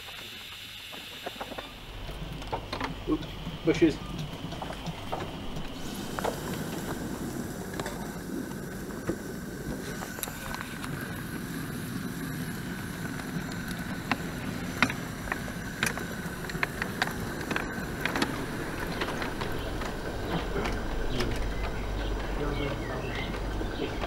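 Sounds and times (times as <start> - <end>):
sharp clicks and knocks: 0.0 - 7.0, 13.0 - 24.0
miniature steam locomotive hissing: 0.0 - 24.0.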